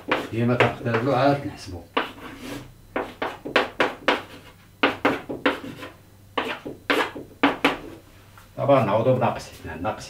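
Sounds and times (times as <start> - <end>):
chalk tapping on chalkboard: 0.0 - 1.1, 2.0 - 8.0.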